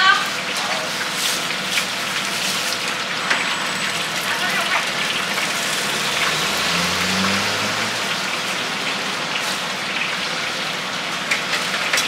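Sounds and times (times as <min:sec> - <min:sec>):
fritters sizzling in hot oil: 0:00.0 - 0:12.0.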